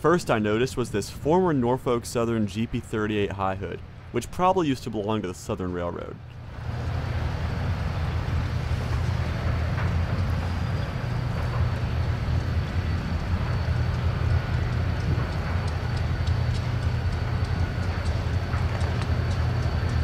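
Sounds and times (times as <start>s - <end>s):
diesel locomotive engine idling: 6.4s - 20.0s.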